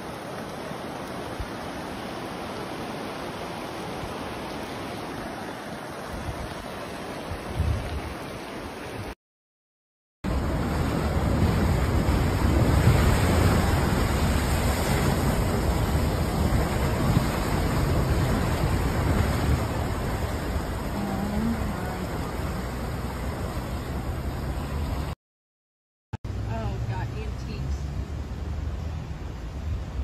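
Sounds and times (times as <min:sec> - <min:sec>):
floodwater rushing: 0:00.0 - 0:09.2, 0:10.3 - 0:25.2.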